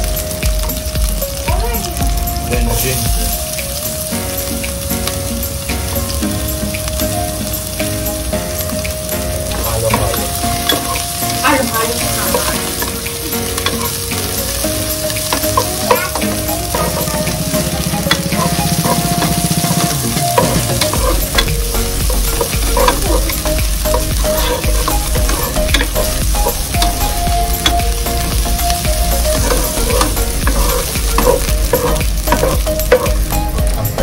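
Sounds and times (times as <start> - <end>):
shallots sizzling in hot oil: 0.0 - 34.0
sustained changing tones: 0.0 - 34.0
spatula scraping and knocking pot: 15.2 - 33.3.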